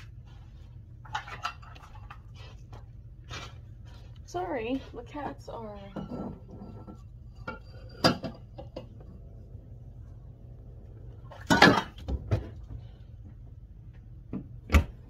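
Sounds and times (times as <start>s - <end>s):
steady low hum: 0.0s - 15.0s
dishes clinking: 5.9s - 9.0s.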